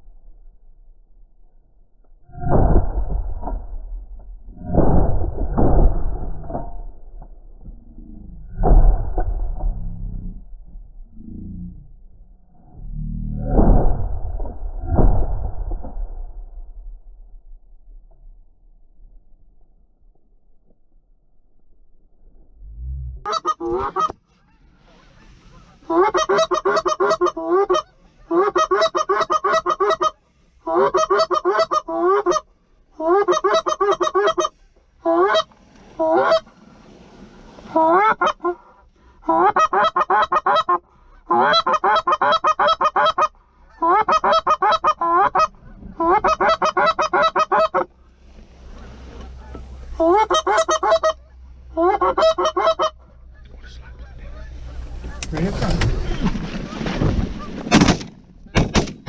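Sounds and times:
goose call honks: 48.8 - 55.5.

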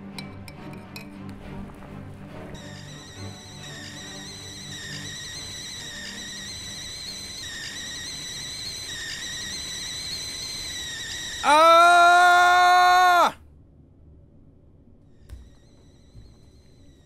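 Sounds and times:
kettle whistling: 2.6 - 12.4, 15.3 - 17.0
loud shrill tone: 2.6 - 13.4.

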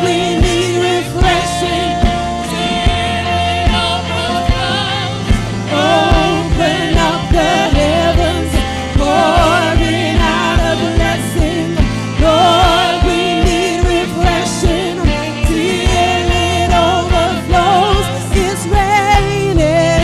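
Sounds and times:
bass and keyboard chords: 0.0 - 20.0
second woman singing: 0.0 - 20.0
steady drum beat: 0.0 - 20.0
woman singing with vibrato: 0.0 - 20.0.

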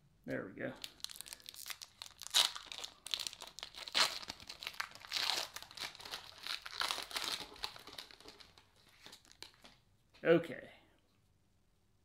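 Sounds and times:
foil wrapper crinkling and tearing: 0.8 - 9.7.

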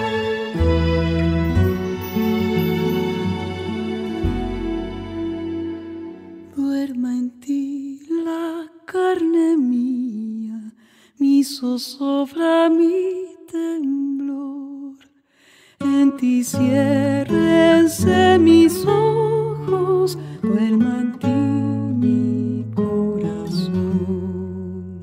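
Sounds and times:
instrumental accompaniment: 0.0 - 6.6
person singing a lullaby: 15.8 - 25.0.

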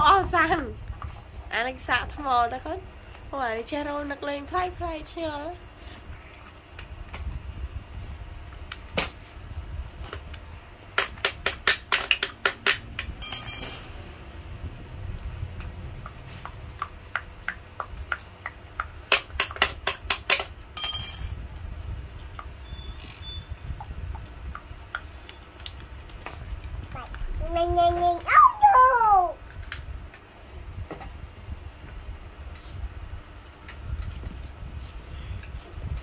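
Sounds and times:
short metallic ring: 13.2 - 14.0, 20.8 - 21.4.

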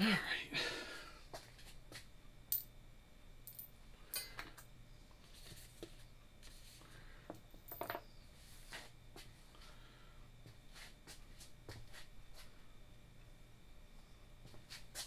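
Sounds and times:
small metal parts clinking: 7.7 - 8.0.

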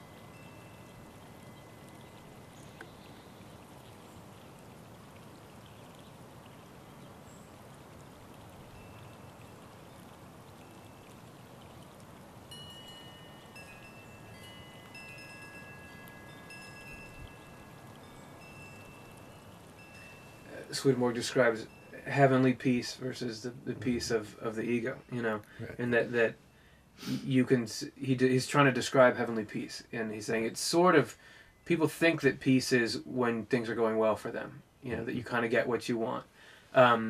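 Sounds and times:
high ringing chime tones: 0.0 - 2.8, 12.5 - 22.6
flowing water hiss: 0.0 - 34.2.

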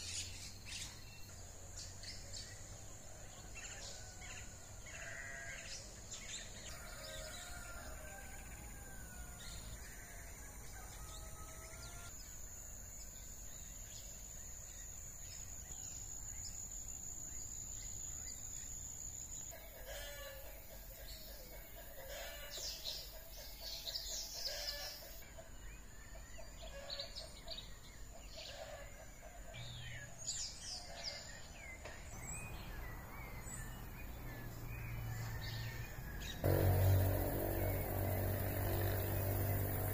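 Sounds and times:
rooster crowing: 6.6 - 12.1
steady high whine: 36.5 - 39.9.

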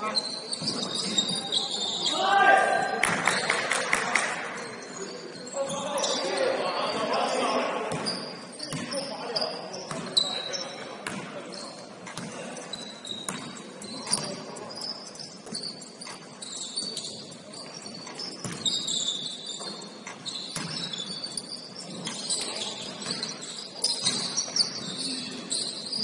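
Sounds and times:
shoes squeaking on court: 0.0 - 26.0
ball bouncing: 12.0 - 12.5, 13.3 - 14.4, 18.3 - 18.8, 19.6 - 21.0.

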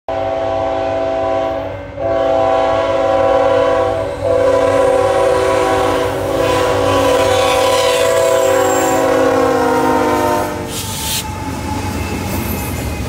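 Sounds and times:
locomotive air horn blasts: 0.1 - 11.3.

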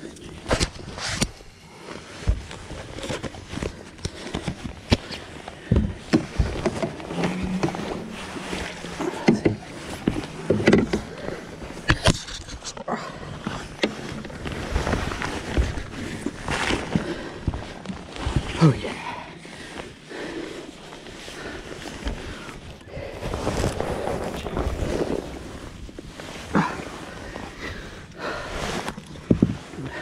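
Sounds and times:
knocks and bumps in a boat: 2.0 - 19.7.

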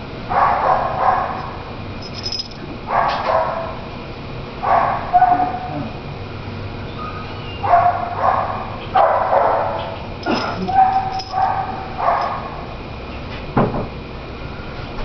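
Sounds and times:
dog barking and yipping: 0.3 - 3.8, 4.6 - 5.8, 7.6 - 12.6.

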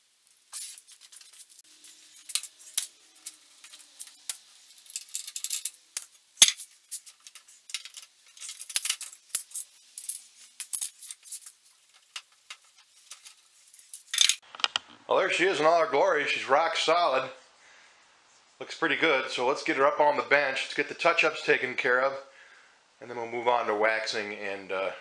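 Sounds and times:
metal clamps clicking and rattling: 0.6 - 14.4.

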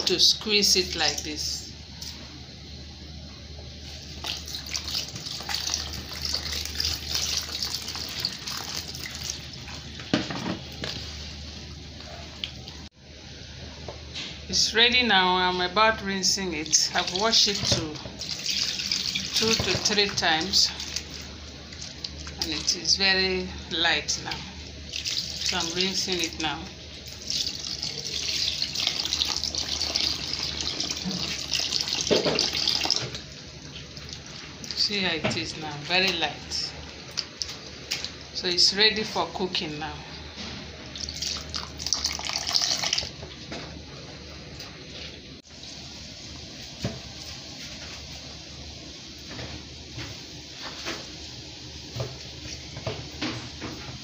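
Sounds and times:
water pouring and splashing on leaves: 3.9 - 9.8, 16.7 - 22.8, 24.9 - 26.3, 27.0 - 34.9, 40.9 - 43.2.

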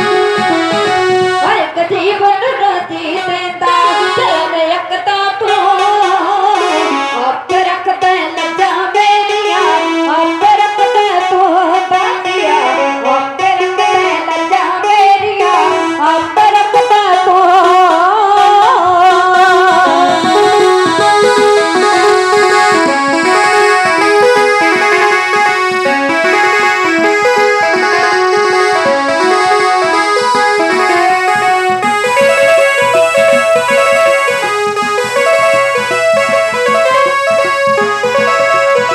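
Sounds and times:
small hand drums: 0.0 - 4.6, 18.5 - 38.9
electronic keyboard melody: 0.0 - 38.9
women singing: 1.4 - 20.9.

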